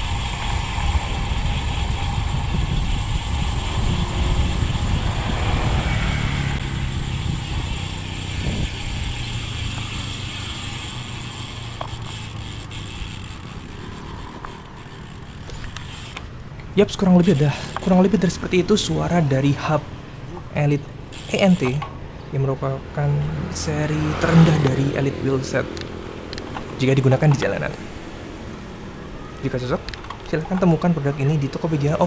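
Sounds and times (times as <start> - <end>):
bicycle freewheel ratchet ticking: 0.0 - 16.3, 16.9 - 18.0, 21.1 - 21.8
motorcycle engine passing: 0.0 - 19.5, 20.9 - 29.4
wind and tyre rush: 0.0 - 32.0.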